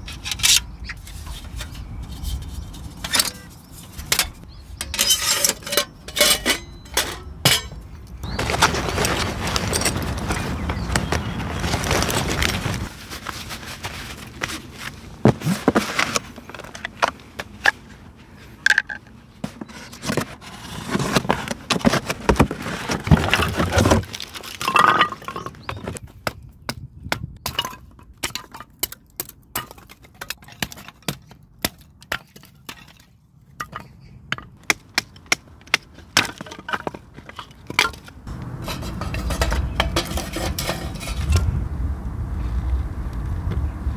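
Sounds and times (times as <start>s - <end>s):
firewood sticks clattering: 0.0s - 13.6s, 21.7s - 26.0s, 27.4s - 41.5s.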